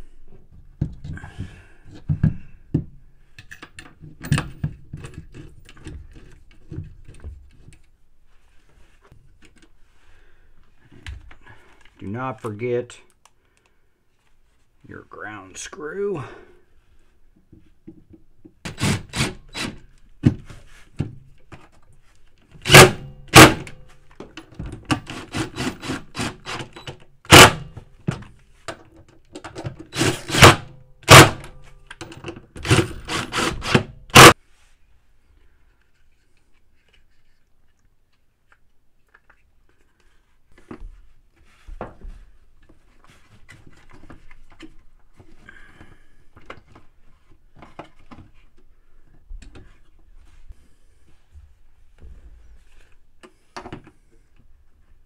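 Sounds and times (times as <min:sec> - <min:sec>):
faint handling sounds: 0:03.0 - 0:16.0, 0:34.4 - 0:55.0
impact driver hammering: 0:22.7 - 0:23.7, 0:27.3 - 0:27.7, 0:30.0 - 0:31.5, 0:32.6 - 0:34.4.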